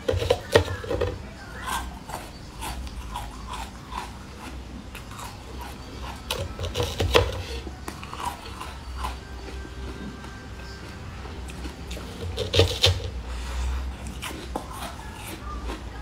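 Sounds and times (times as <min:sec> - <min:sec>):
chewing crackles: 0:00.0 - 0:16.0.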